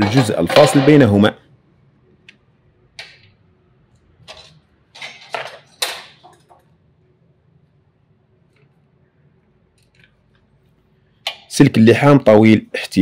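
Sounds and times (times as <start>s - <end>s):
metal rods clattering on workbench: 0.0s - 1.1s, 4.2s - 6.6s.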